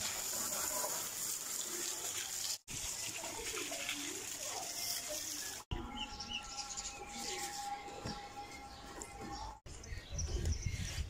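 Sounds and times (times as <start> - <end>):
hose water spraying: 0.0 - 5.7.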